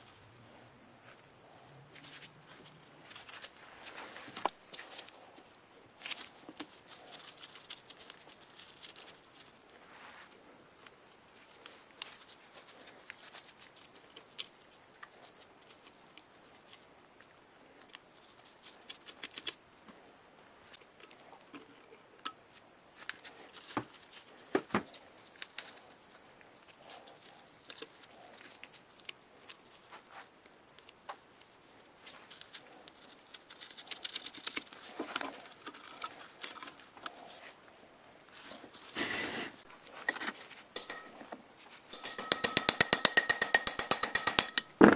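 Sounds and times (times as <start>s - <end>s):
tools clicking and tapping: 40.8s - 44.9s.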